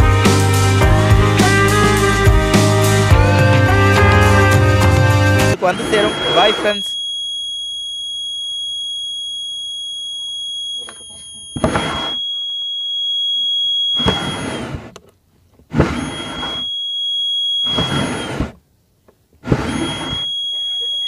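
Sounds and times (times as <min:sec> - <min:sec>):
piercing buzzer tone: 0:03.2 - 0:14.8, 0:15.8 - 0:18.6, 0:19.5 - 0:21.0.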